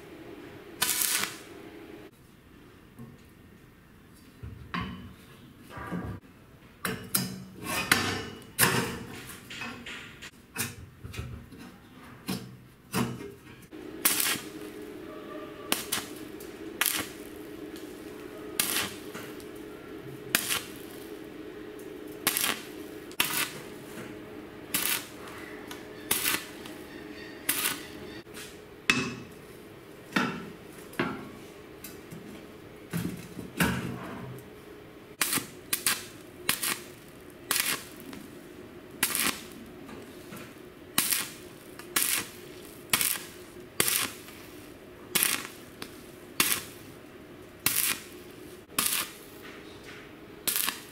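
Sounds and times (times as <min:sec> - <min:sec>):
steady low hum: 0:00.0 - 0:02.1, 0:13.4 - 0:50.9
welding arc cracks: 0:00.8 - 0:01.5, 0:13.8 - 0:15.0, 0:15.7 - 0:19.7, 0:20.3 - 0:21.3, 0:21.9 - 0:24.1, 0:24.7 - 0:26.8, 0:27.5 - 0:28.0, 0:35.2 - 0:38.3, 0:39.0 - 0:47.0, 0:47.6 - 0:49.4, 0:50.4 - 0:50.9.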